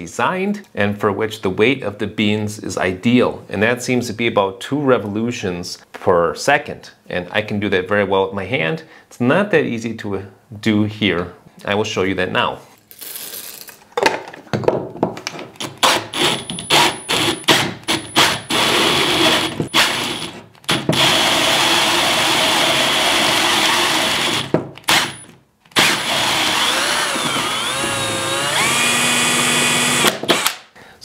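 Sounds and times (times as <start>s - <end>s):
drill grinding coffee beans: 16.2s - 30.1s.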